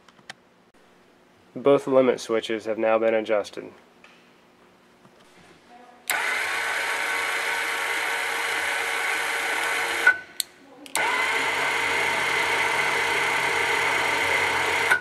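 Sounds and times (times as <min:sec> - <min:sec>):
electric motor whining: 0:06.1 - 0:10.2, 0:11.0 - 0:15.0.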